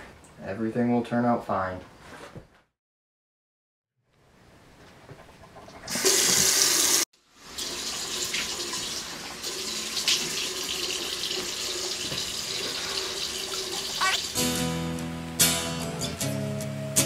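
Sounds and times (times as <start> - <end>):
water running from faucet: 5.8 - 14.5.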